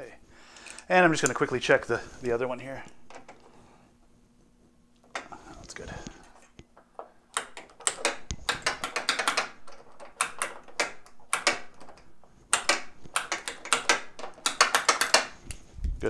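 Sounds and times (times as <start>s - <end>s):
pinball flipper mechanism clacking: 7.3s - 15.4s.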